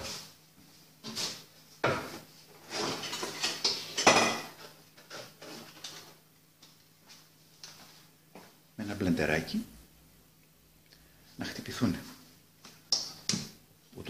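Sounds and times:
kitchen utensils clattering: 0:01.8 - 0:06.2.

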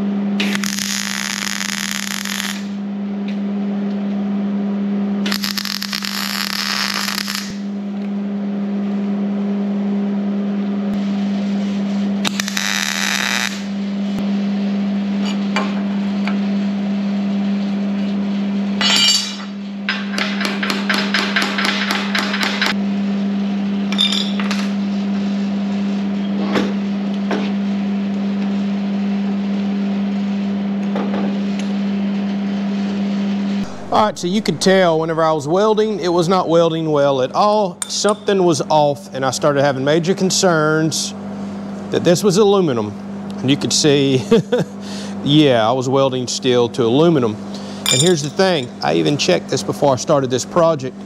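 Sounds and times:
steady hum: 0:00.0 - 0:26.7, 0:31.5 - 0:51.0
welding arc crackle: 0:00.4 - 0:02.8, 0:05.3 - 0:07.7, 0:12.2 - 0:13.7
metallic taps and clinks: 0:47.9 - 0:48.7.

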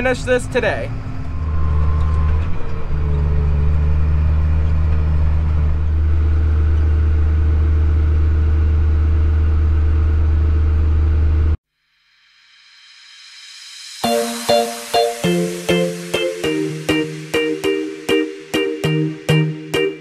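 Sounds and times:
tractor engine running: 0:00.0 - 0:11.6.

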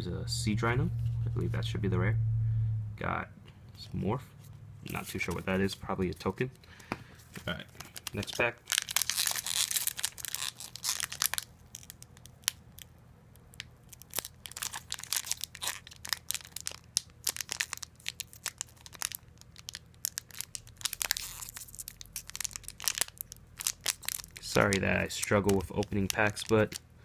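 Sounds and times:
foil wrapper crinkling and tearing: 0:07.7 - 0:26.8.

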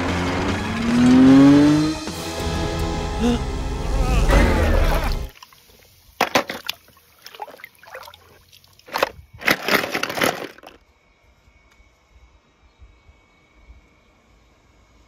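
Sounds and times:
water sloshing and splashing: 0:04.5 - 0:10.8.

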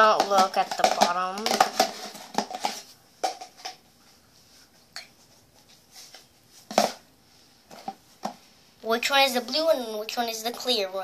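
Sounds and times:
plastic containers knocking on table: 0:00.0 - 0:03.8, 0:06.7 - 0:07.0.

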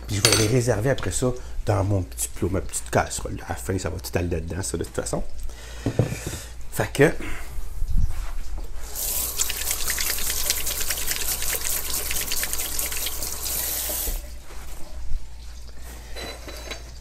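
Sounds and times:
butter and oil sizzling in a wok: 0:08.9 - 0:14.3.

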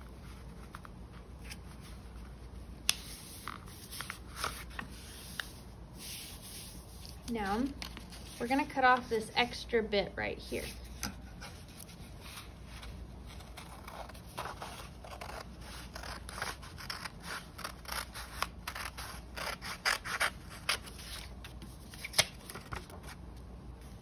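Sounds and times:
paper rustling: 0:00.0 - 0:09.2
scissors snipping paper: 0:13.6 - 0:21.3.

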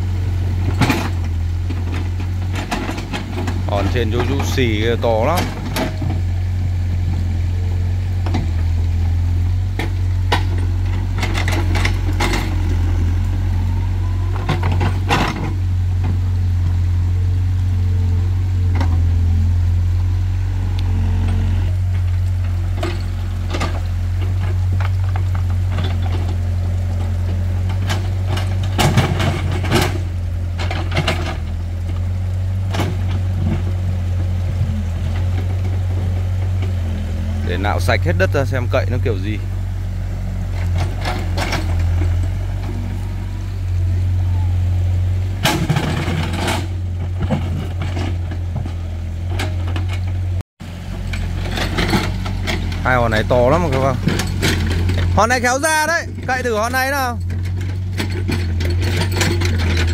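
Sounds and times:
excavator engine running: 0:00.0 - 0:59.9
bucket clanking on rocks: 0:51.0 - 0:59.9.

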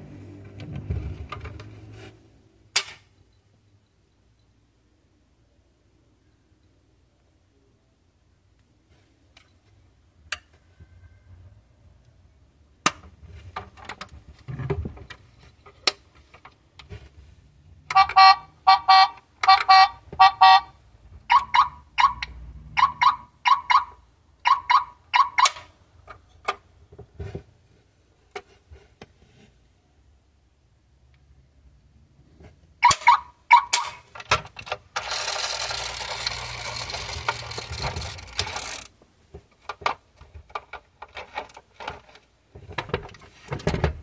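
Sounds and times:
plastic clicks of toy parts: 0:02.7 - 0:03.2, 0:33.7 - 0:42.3
toy car horn honking: 0:17.9 - 0:25.7, 0:32.8 - 0:33.9.

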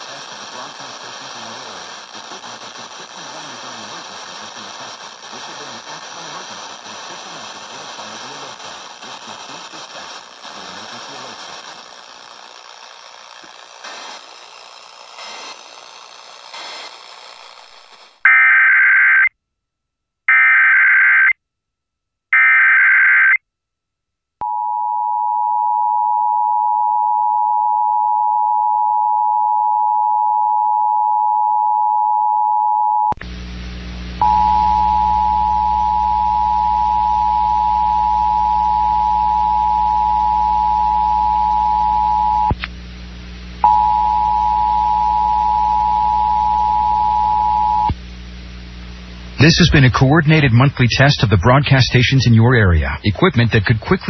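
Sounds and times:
hiss and hum: 0:00.0 - 0:18.2, 0:33.2 - 0:54.0
buzzy digital data bursts: 0:00.0 - 0:18.3
click: 0:42.5 - 0:42.8.

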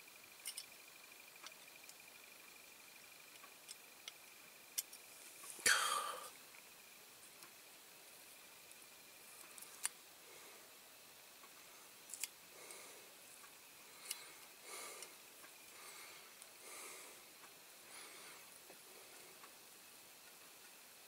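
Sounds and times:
small sharp clicks: 0:00.4 - 0:00.8, 0:11.4 - 0:12.8.

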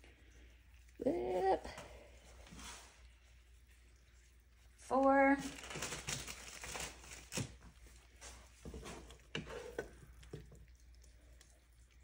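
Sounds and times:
wooden spoon scooping from a skillet: 0:01.2 - 0:03.6, 0:07.6 - 0:11.5
plastic bag rustling: 0:05.2 - 0:10.0.

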